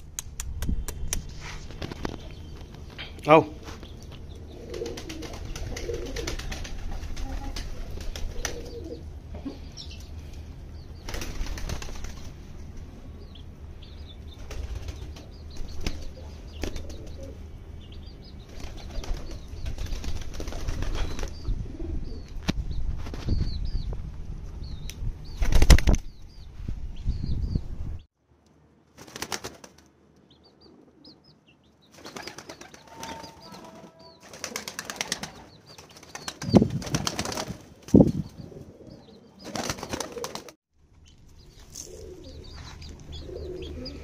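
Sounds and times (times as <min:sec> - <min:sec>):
pigeons flapping wings: 0:04.6 - 0:09.0, 0:11.0 - 0:12.4, 0:14.3 - 0:17.3, 0:18.5 - 0:21.4, 0:25.4 - 0:26.1, 0:28.9 - 0:29.9, 0:31.9 - 0:38.4, 0:39.4 - 0:40.6.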